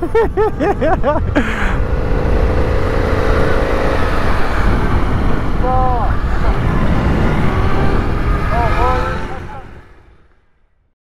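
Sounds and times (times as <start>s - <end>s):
motorcycle engine: 0.0s - 10.8s
wind rumble: 0.0s - 10.9s.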